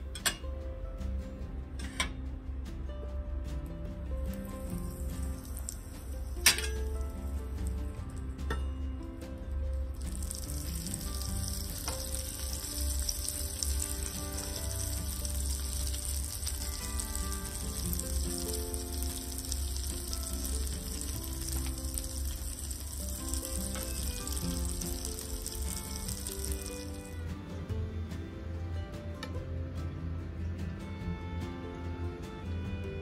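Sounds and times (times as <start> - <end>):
soft background music: 0.0 - 33.0
butter sizzling in frying pan: 4.4 - 8.2, 9.9 - 27.2.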